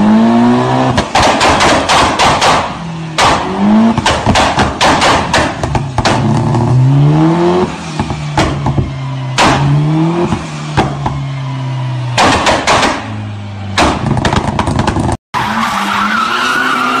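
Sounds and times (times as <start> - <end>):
car engine revving: 0.0 - 17.0
exhaust cracks: 0.9 - 6.9, 7.6 - 11.2, 12.1 - 15.2.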